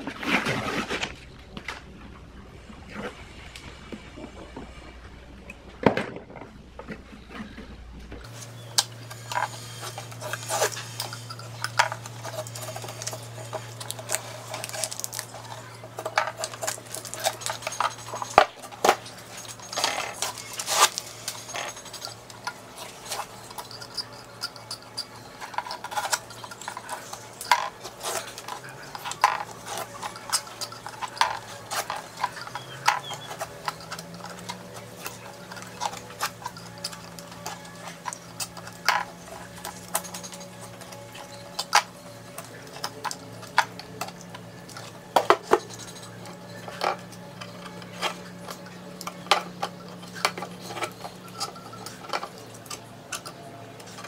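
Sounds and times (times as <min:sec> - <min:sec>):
utility knife scraping board: 0:08.3 - 0:14.9.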